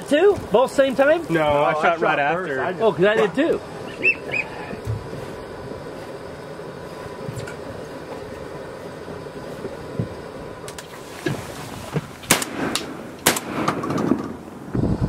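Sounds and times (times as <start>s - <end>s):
shotgun shots: 12.3s - 14.4s.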